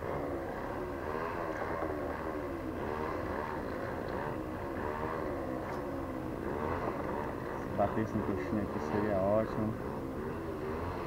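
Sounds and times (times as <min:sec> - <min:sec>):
brush cutter motor running: 0:00.0 - 0:11.0.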